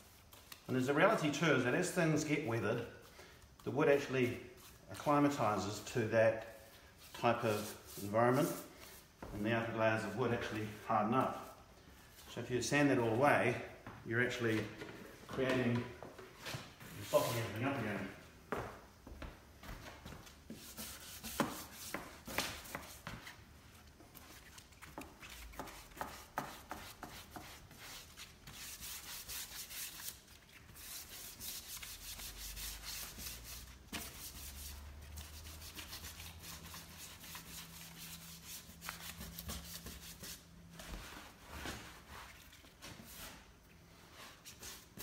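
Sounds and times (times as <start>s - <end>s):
cloth rag rubbing wood: 6.5s - 11.6s, 16.8s - 18.2s, 20.5s - 23.1s, 24.2s - 43.5s.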